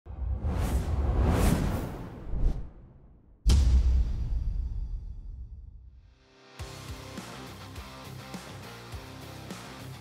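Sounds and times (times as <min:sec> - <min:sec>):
whooshing swells: 0:00.1 - 0:03.2.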